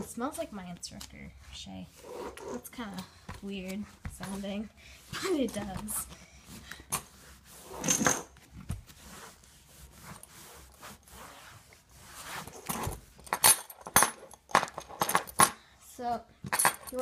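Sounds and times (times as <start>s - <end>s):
cloth rustling: 1.3s - 13.4s
metal buckles clinking: 12.6s - 15.6s, 16.4s - 17.0s.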